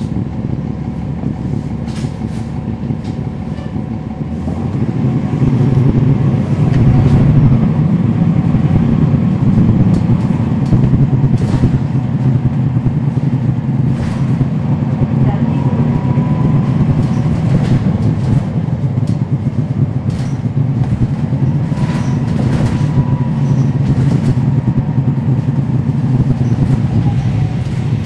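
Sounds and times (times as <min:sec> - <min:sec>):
bus diesel engine running: 0:00.0 - 0:28.0.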